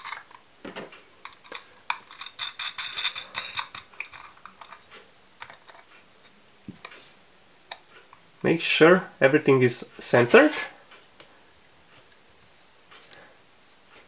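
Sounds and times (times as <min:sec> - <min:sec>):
metal washers clinking: 0:00.0 - 0:05.9.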